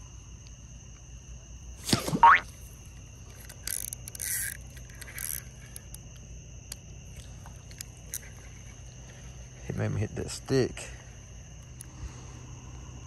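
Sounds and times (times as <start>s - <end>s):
night insects droning: 0.0s - 13.0s
fishing gear scraping: 1.8s - 6.0s, 7.1s - 9.6s.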